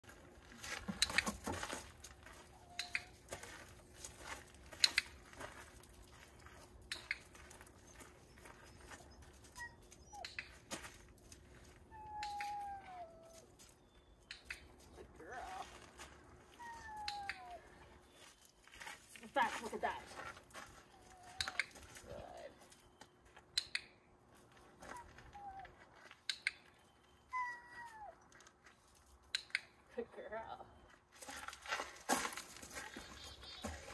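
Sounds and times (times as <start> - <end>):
footsteps crunching on gravel: 0.0 - 10.0, 15.2 - 16.8, 17.5 - 23.4, 30.9 - 33.9
dog whimpering: 8.3 - 10.4, 11.9 - 13.5, 27.4 - 28.2
sharp clicks: 14.2 - 14.7, 23.5 - 24.0
sharp click: 23.6 - 23.9.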